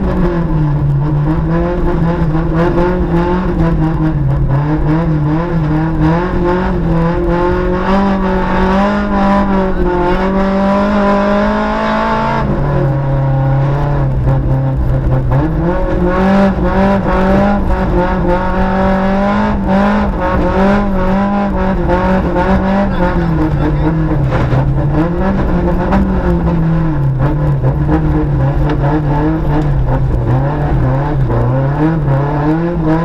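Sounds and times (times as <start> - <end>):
rally car engine pulling hard: 0.0 - 33.0
gravel rattling against car underside: 12.4 - 32.9.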